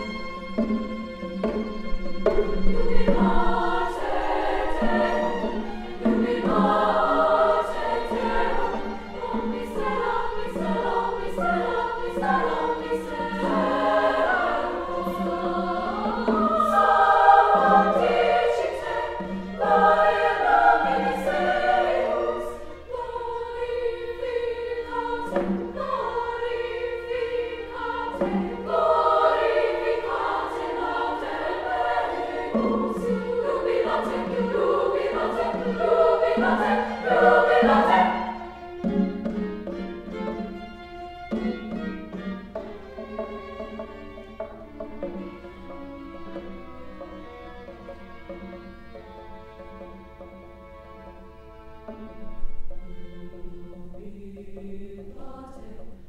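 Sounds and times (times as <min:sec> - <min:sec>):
women's chorus singing: 0:02.6 - 0:39.6, 0:52.8 - 0:56.0.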